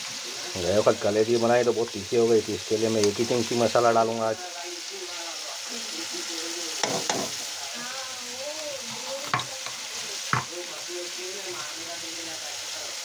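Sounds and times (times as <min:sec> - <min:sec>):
onion frying in oil: 0:00.0 - 0:13.0
metal spoon stirring in pan: 0:01.3 - 0:04.3, 0:05.0 - 0:07.8, 0:08.4 - 0:11.9.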